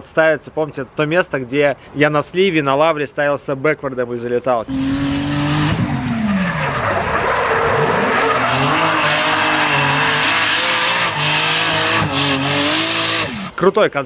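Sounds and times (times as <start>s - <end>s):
car engine revving: 4.7s - 13.6s
tyres squealing: 6.5s - 13.5s.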